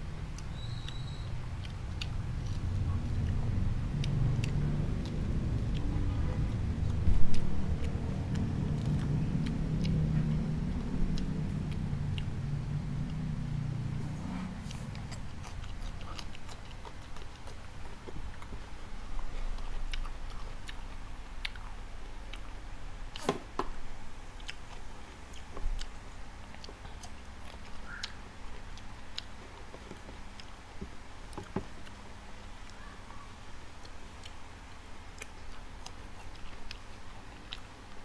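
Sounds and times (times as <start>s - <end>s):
chewing crunchy broccoli: 0.3s - 23.6s, 24.2s - 38.0s.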